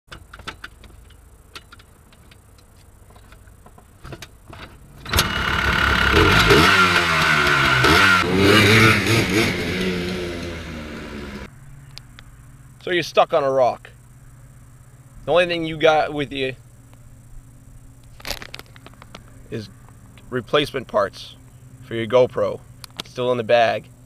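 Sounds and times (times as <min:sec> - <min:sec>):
small atv engine revving: 0:05.0 - 0:11.5.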